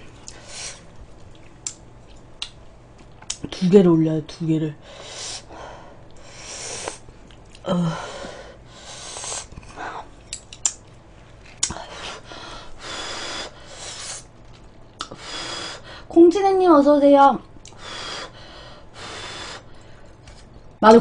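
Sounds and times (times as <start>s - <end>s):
person chewing food: 6.8s - 7.7s, 14.2s - 15.2s
person breathing loudly: 7.7s - 10.1s, 11.7s - 14.2s, 15.1s - 16.1s, 17.7s - 20.2s.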